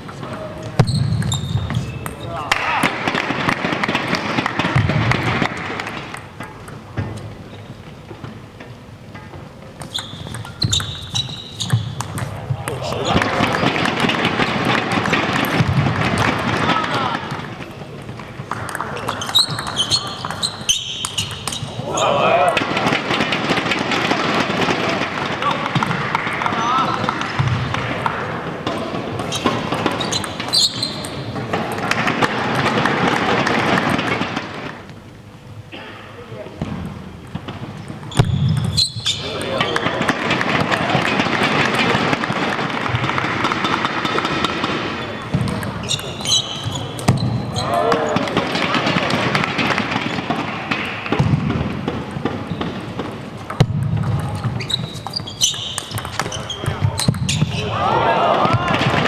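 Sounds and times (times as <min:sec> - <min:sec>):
sports hall noise: 0:00.0 - 0:59.0
shoe squeak: 0:00.8 - 0:02.4, 0:09.8 - 0:12.2, 0:19.0 - 0:22.2, 0:29.2 - 0:31.3, 0:38.1 - 0:39.9, 0:45.0 - 0:47.9, 0:54.5 - 0:57.7
table tennis ball clicking: 0:53.5 - 0:57.1.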